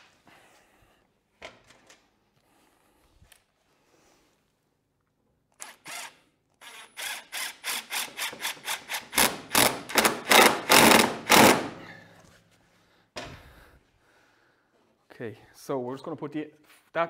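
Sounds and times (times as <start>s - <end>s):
impact driver driving screw: 5.6s - 11.8s.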